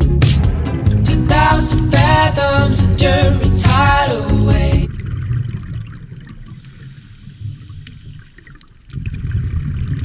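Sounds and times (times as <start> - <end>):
low underwater rumbling: 0.0 - 10.0
faint crackling clicks: 5.0 - 9.0.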